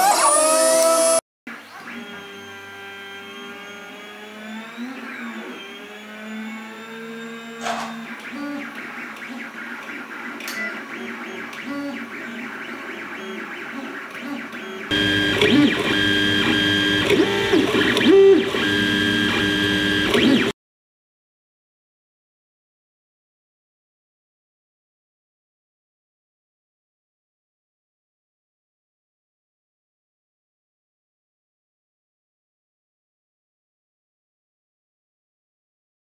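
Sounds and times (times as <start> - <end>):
stepper motors whining: 0.0 - 20.5.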